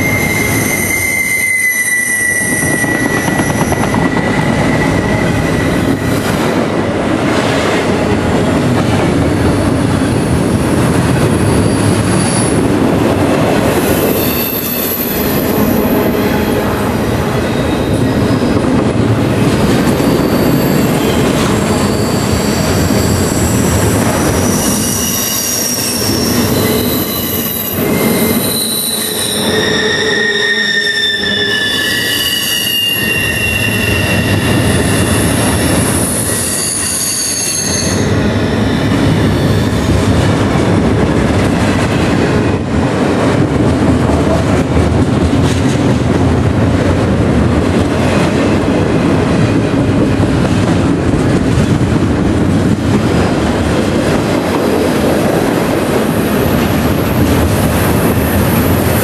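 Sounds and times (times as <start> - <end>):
wheels squealing: 0.0 - 6.3, 19.8 - 40.0
train wheels rumbling on rails: 0.0 - 59.0.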